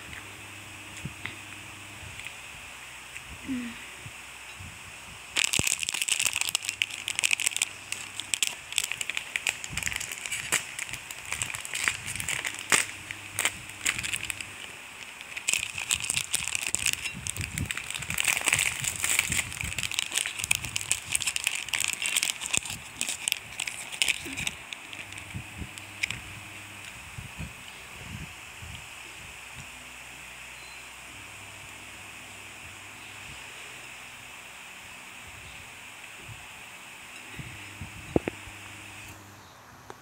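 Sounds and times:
plastic wrapper crinkling: 5.4 - 26.2.

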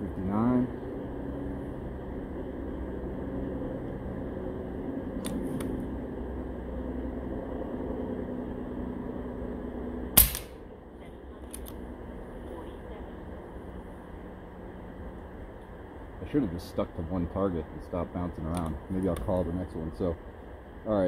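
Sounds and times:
steady low hum: 0.0 - 21.0
air rifle shot: 10.2 - 10.6.

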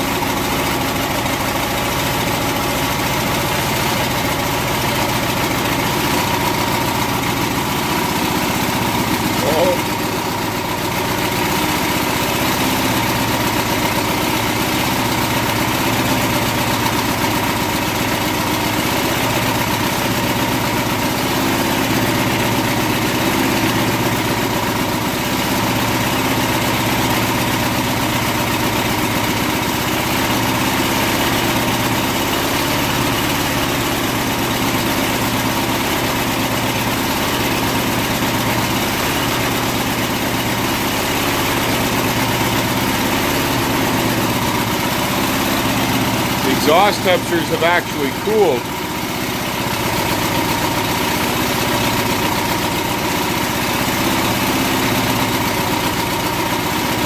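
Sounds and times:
lawn mower engine running: 0.0 - 57.0.

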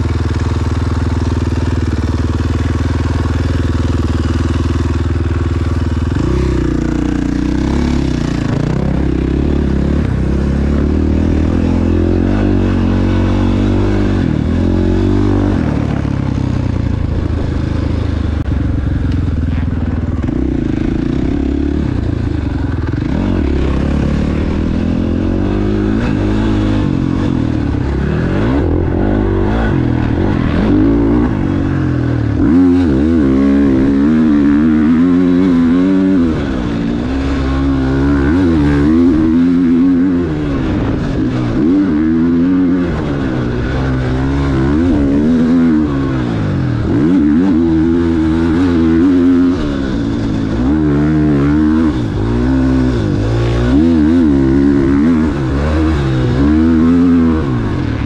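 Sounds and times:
motocross engine revving: 0.0 - 58.0.

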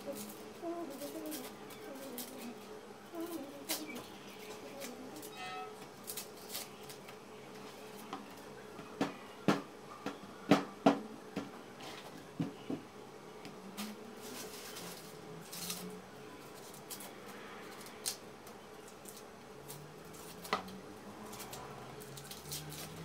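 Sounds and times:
knife scraping onion skins: 0.0 - 8.1, 18.9 - 23.0.

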